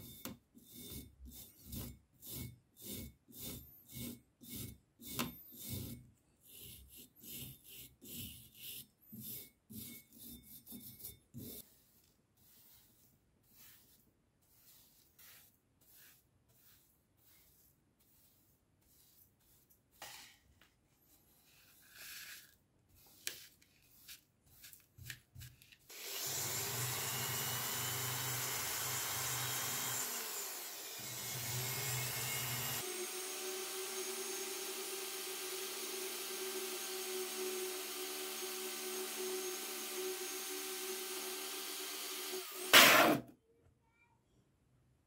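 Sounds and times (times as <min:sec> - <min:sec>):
brush scraping on wooden tabletop: 0:00.7 - 0:25.8
electric drill grinding rust: 0:25.9 - 0:43.2.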